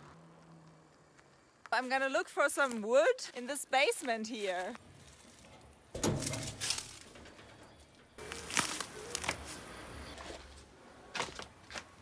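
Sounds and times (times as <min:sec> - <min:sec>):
metal door scraping open: 0:05.4 - 0:08.2.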